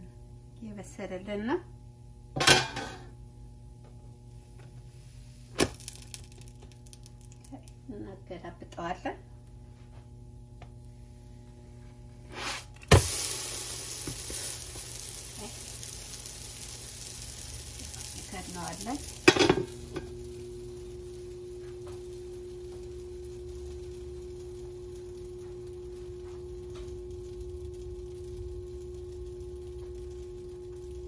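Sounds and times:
steady hum: 0.0 - 31.0
dough sizzling on griddle: 4.3 - 7.8, 10.8 - 31.0.

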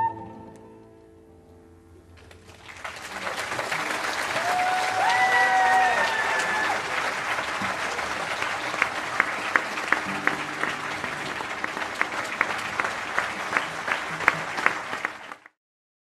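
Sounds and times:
audience applauding: 2.2 - 15.6.

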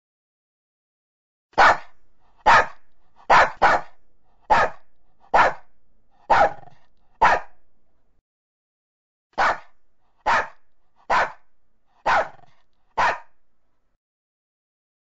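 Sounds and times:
dog barking: 1.6 - 7.6, 9.4 - 13.4.

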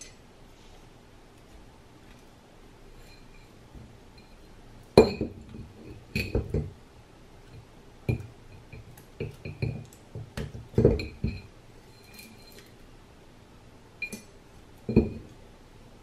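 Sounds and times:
metal clinks and knocks: 2.9 - 6.8, 8.0 - 12.8, 14.0 - 15.4.

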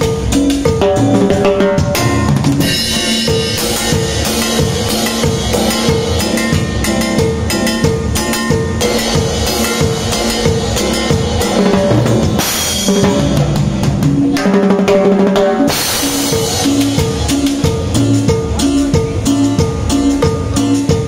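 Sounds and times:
band music with bass line: 0.0 - 21.0
drum kit playing: 0.0 - 21.0
cymbal crashes: 1.4 - 14.5, 15.4 - 18.5.

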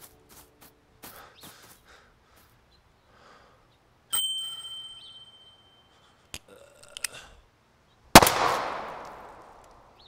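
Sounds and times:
gunshot with echo: 8.2 - 9.5.

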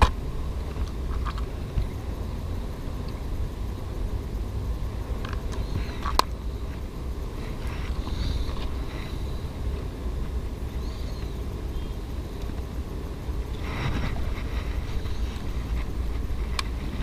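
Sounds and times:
low wind rumble on microphone: 0.0 - 17.0
faint high chirps: 10.6 - 12.8.

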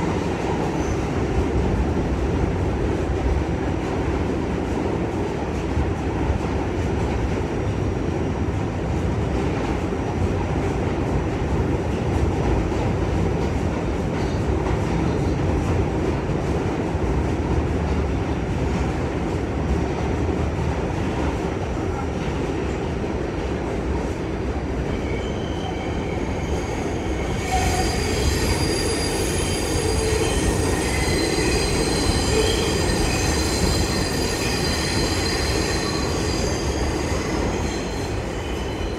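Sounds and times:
subway car wheels rumbling: 0.0 - 38.9
high-pitched metallic squeal: 25.0 - 38.9.

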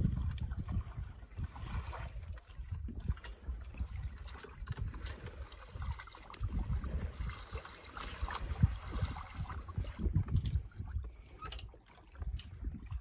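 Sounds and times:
water splashing along hull: 0.0 - 13.0
wind rumble on microphone: 0.0 - 13.0.

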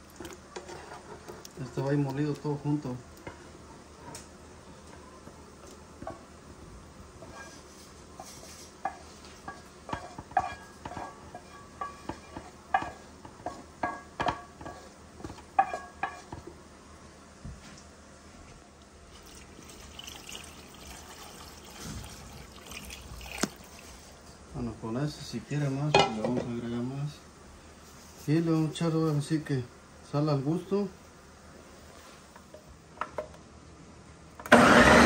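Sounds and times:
water pouring into jar: 19.1 - 24.2.

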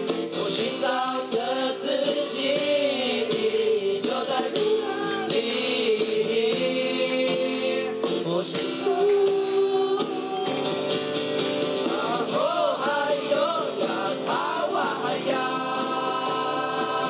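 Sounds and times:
young voices singing together: 0.0 - 10.6, 11.8 - 17.0
strummed acoustic guitar: 0.0 - 17.0.

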